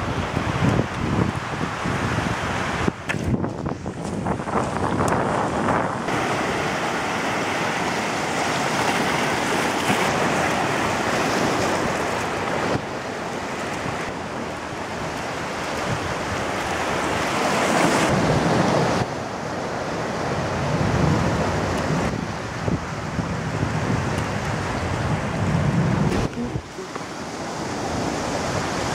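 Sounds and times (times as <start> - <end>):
wind buffeting microphone: 0.0 - 28.9
surf breaking on rocks: 2.4 - 19.1.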